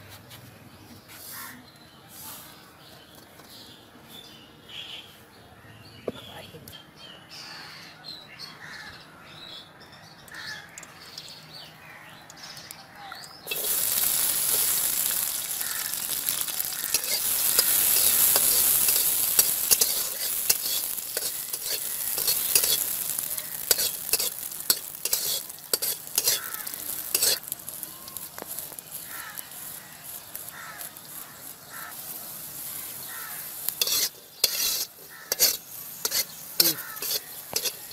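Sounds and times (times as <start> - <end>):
birds calling faintly: 0.4 - 37.9
nuts sizzling in hot oil: 13.4 - 37.9
metal spatula scraping a pan: 13.5 - 27.6, 32.8 - 37.9.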